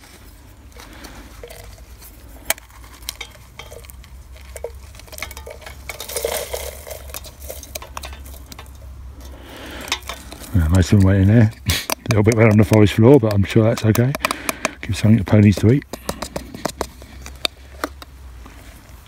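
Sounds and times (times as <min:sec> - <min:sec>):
spork scraping in plastic tub: 0:00.8 - 0:18.0.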